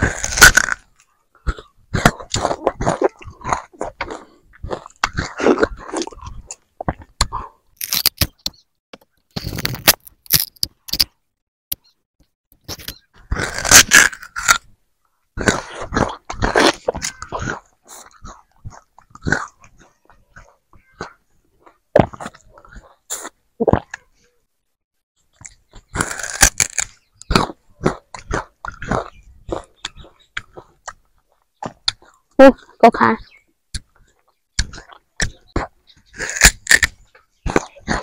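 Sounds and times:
sugarcane being bitten and chewed: 0.0s - 11.8s, 12.6s - 24.1s, 25.2s - 38.0s.

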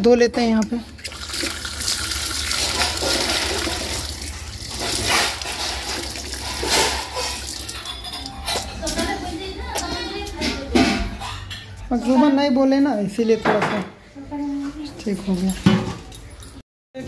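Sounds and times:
water splashing on concrete: 1.0s - 7.9s
tap water running over hands: 1.0s - 8.3s.

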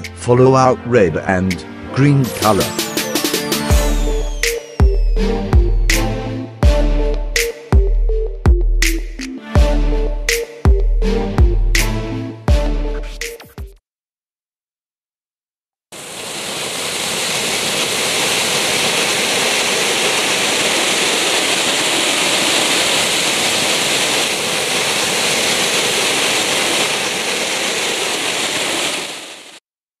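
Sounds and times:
firework fountain hissing: 16.0s - 29.6s.

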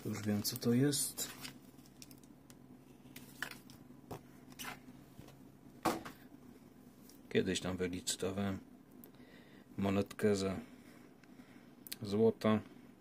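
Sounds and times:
plastic sleeve rustling: 0.0s - 3.8s.

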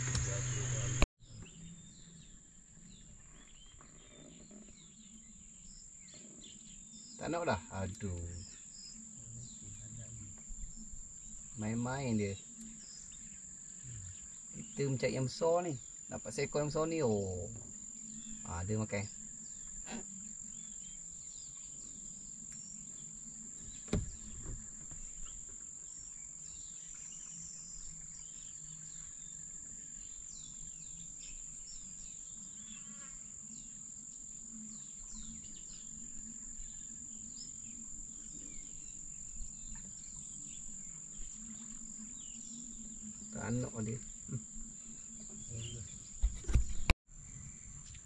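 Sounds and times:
insects droning: 0.0s - 48.0s
bird chirps: 34.7s - 48.0s.

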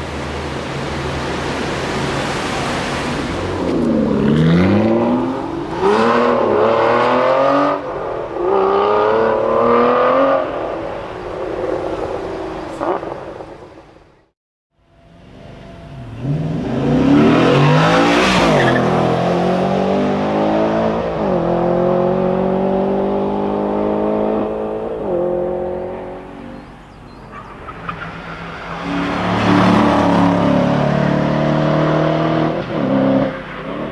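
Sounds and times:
car engine accelerating hard: 16.0s - 26.3s, 28.6s - 33.9s.

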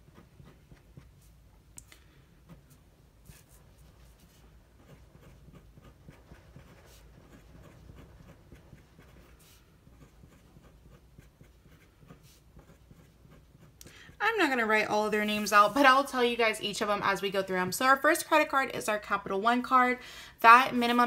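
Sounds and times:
pen scratching on paper: 0.0s - 1.4s, 3.2s - 14.5s.

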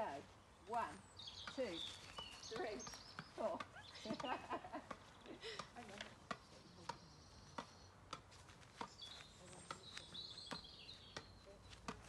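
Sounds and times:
faint birdsong: 0.0s - 12.0s
tennis ball hitting rackets: 1.4s - 9.0s.

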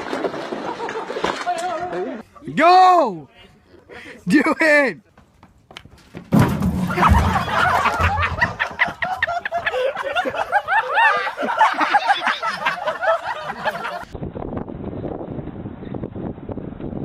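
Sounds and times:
plastic barrel thumps: 6.2s - 8.6s
people laughing shrilly: 6.8s - 14.1s.

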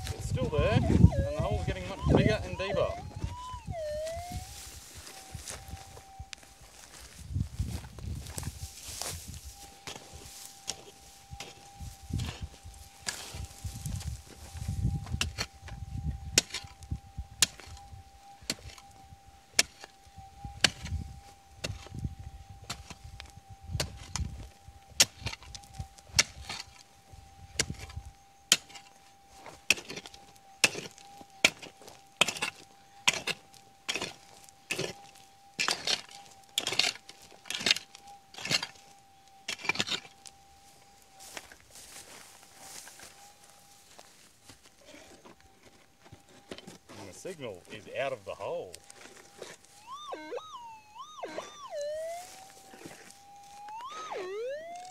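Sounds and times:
metal detector steady tone: 0.0s - 54.9s
pick striking stony ground: 28.5s - 38.8s.

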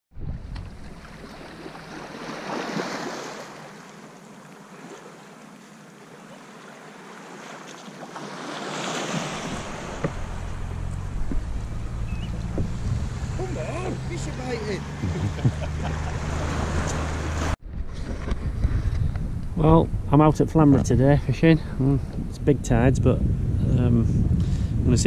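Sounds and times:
waves washing on pebbles: 1.0s - 4.0s, 6.5s - 10.5s
wind buffeting microphone: 9.1s - 25.0s
short knocks: 9.8s - 13.0s.

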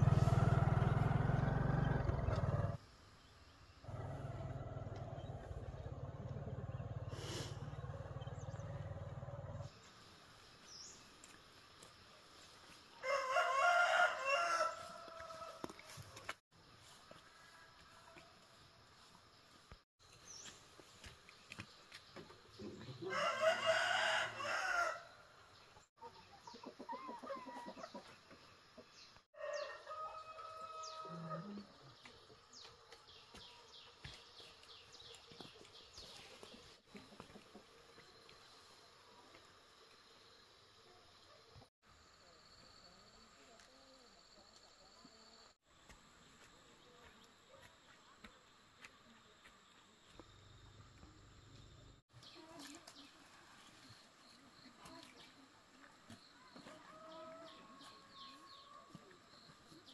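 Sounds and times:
rooster crowing: 13.0s - 15.7s, 23.0s - 25.1s, 29.4s - 31.5s.

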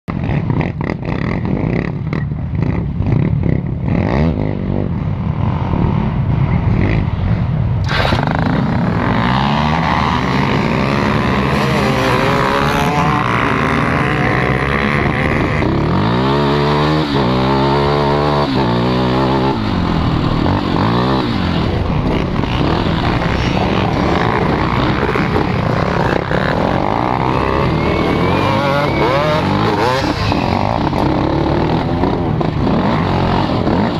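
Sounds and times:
rushing wind: 2.5s - 33.9s
quad engine revving: 7.8s - 33.9s.

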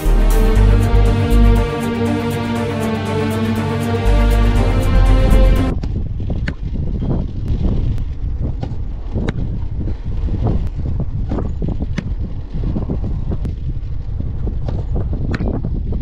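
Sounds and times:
wind buffeting microphone: 5.7s - 16.0s.

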